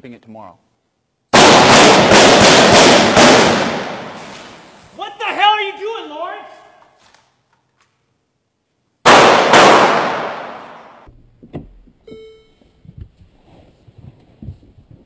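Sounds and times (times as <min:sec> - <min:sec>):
loud bangs ringing in a hall: 0:01.3 - 0:04.8, 0:09.0 - 0:11.1
short electronic tone: 0:12.1 - 0:12.8.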